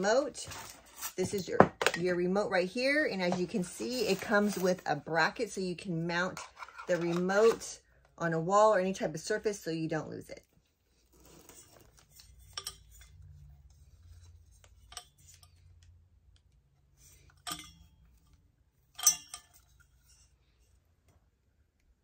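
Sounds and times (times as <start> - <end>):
clicks and knocks of handling parts: 11.6 - 20.3.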